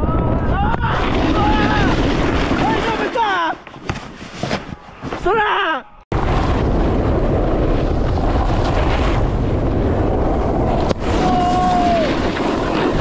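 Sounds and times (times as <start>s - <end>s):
snowboards sliding on snow: 7.6s - 13.0s.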